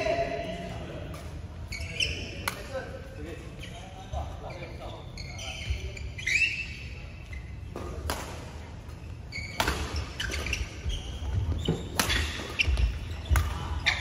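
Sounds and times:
shoes squeaking on floor: 0:01.6 - 0:02.4, 0:03.5 - 0:07.8, 0:08.8 - 0:14.0
rackets striking shuttlecock: 0:07.7 - 0:10.5, 0:11.9 - 0:13.6.

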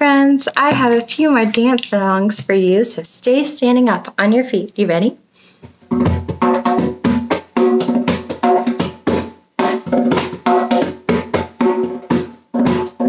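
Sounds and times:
instrumental dance music: 0:05.7 - 0:13.0.

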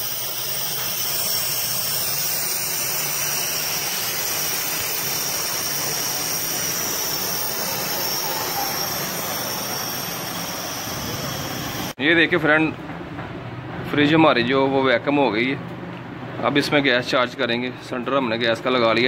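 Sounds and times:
compressor running with hiss and hum: 0:00.0 - 0:12.0.

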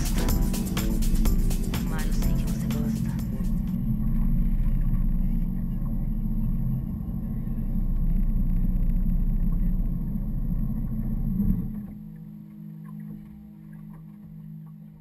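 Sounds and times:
speedboat engine rumble: 0:00.0 - 0:11.7.

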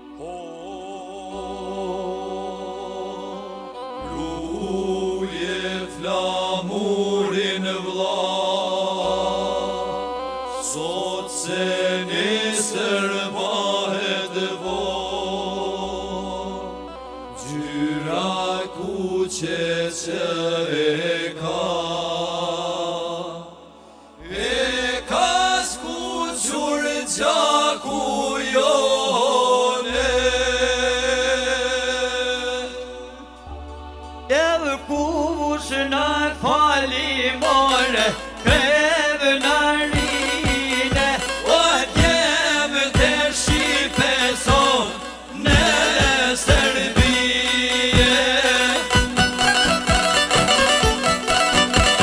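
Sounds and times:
man singing: 0:00.0 - 0:03.4, 0:34.3 - 0:50.2
held instrumental tones: 0:37.0 - 0:52.0.

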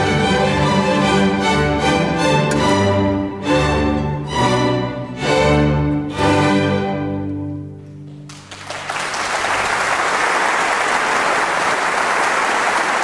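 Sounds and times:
audience applause: 0:08.2 - 0:13.0.

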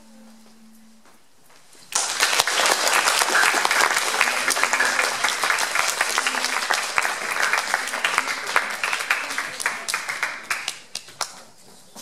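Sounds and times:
audience applauding: 0:01.9 - 0:11.4.

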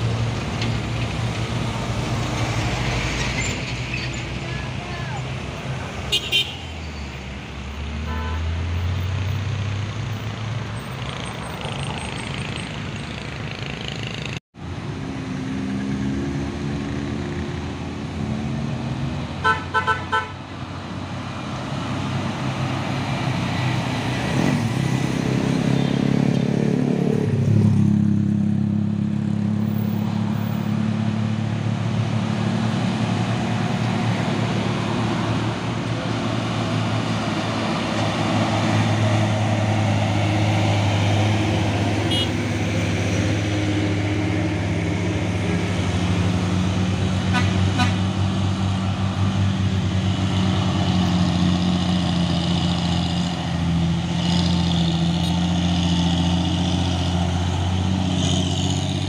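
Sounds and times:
diesel truck engines: 0:00.0 - 0:59.0
road traffic: 0:00.0 - 0:59.0
horn toots: 0:06.1 - 0:06.8, 0:08.0 - 0:08.6, 0:19.4 - 0:20.4, 0:42.0 - 0:42.5, 0:47.2 - 0:48.2
heavy truck engine close by: 0:20.4 - 0:59.0.

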